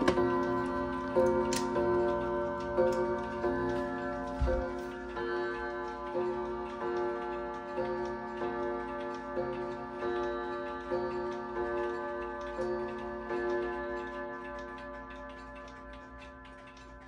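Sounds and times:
clock striking two gongs: 0.0s - 17.0s
clock ticking: 0.0s - 17.0s.

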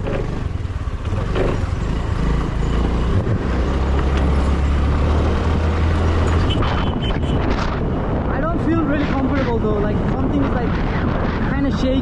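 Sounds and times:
wind and road noise: 0.0s - 12.0s.

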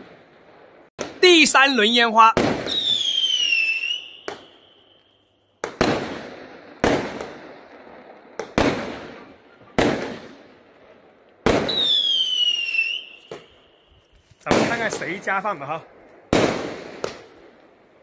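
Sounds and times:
fireworks bangs echoing: 0.0s - 5.0s, 5.6s - 13.8s, 14.4s - 17.8s
whistling firework: 1.3s - 10.6s, 11.4s - 15.2s.

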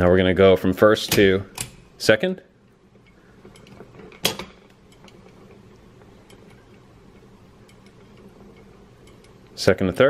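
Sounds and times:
gears ticking faintly: 2.7s - 9.7s.

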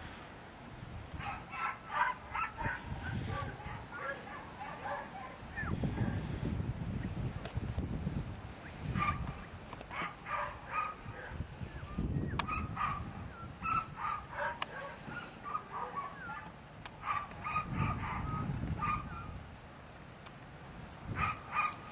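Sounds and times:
dog yipping and barking: 1.2s - 5.7s, 10.0s - 11.0s, 12.4s - 19.3s, 21.2s - 21.9s.

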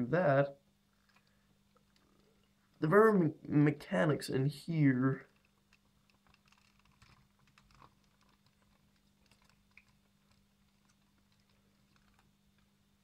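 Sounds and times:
faint plastic clicks and ticks: 0.9s - 2.8s, 5.2s - 13.0s.

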